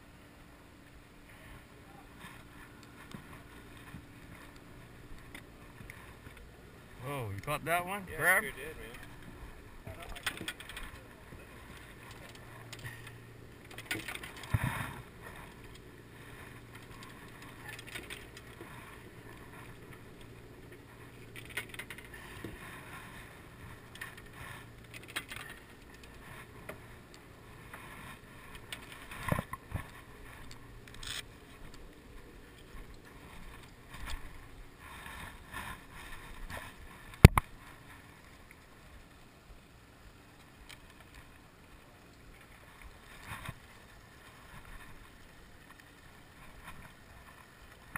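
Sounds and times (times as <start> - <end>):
low boat hum: 0.0 - 47.9
fishing rods knocking and rattling: 8.8 - 15.9, 16.6 - 22.6, 23.9 - 26.8.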